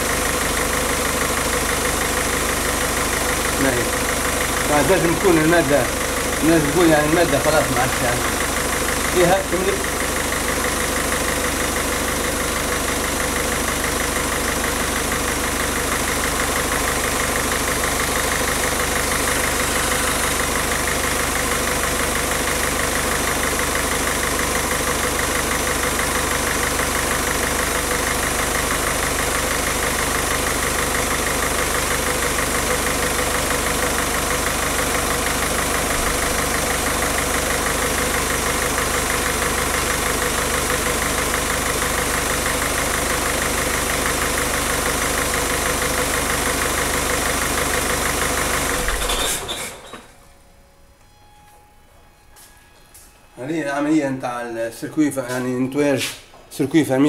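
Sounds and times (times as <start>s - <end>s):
diesel engine idling: 0.0s - 50.9s
turbo hissing: 19.2s - 20.8s.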